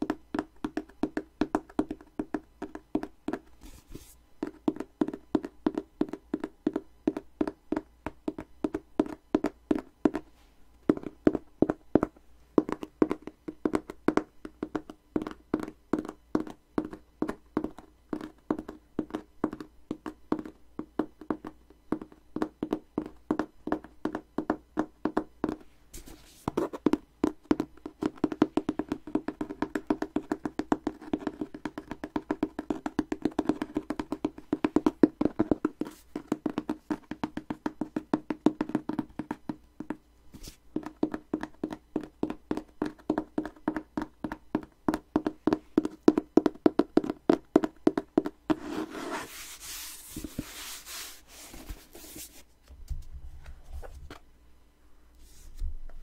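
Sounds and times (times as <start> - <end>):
fingertips tapping on small box: 4.4 - 10.2, 26.5 - 40.0, 40.7 - 48.8.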